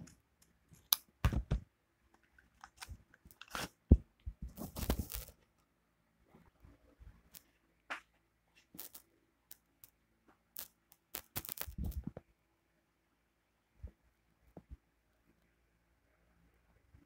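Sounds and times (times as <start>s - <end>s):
hands handling small toy: 0.0s - 5.5s, 10.6s - 12.2s.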